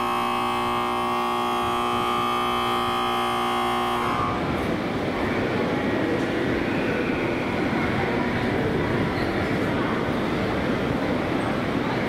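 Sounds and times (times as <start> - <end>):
electronic signal tone: 0.0 - 4.6.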